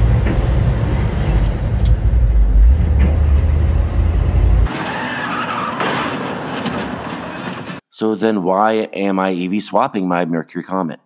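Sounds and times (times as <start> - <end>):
car engine rumbling: 0.0 - 4.7.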